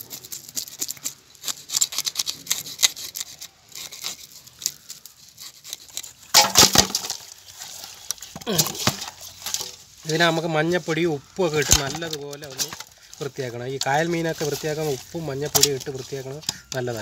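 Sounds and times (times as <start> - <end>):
knife scraping fish scales: 0.0 - 6.3.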